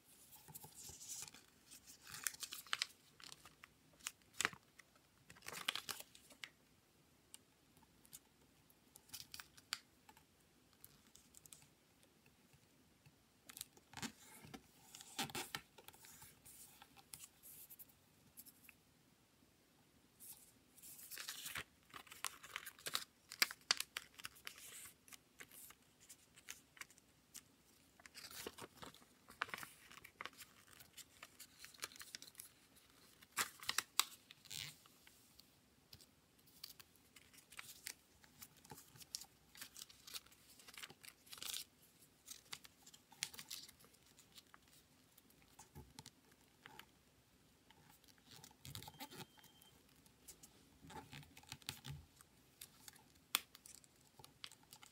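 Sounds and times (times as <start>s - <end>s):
paper rustling and crinkling: 20.8s - 35.4s, 36.5s - 44.8s.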